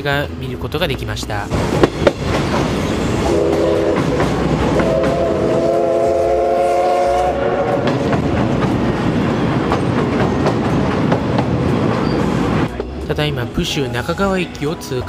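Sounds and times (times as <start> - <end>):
train wheels clickety-clack: 1.5 - 5.8, 7.6 - 13.0
steam whistle blasts: 3.2 - 4.1, 4.7 - 7.9.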